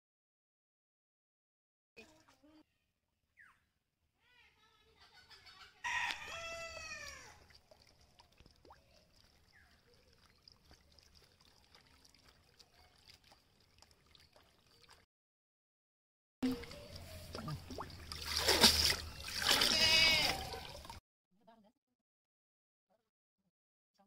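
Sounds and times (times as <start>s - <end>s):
faint trickling water: 2.0s - 2.6s, 6.2s - 15.1s, 16.4s - 21.0s
cat meowing: 19.6s - 20.5s.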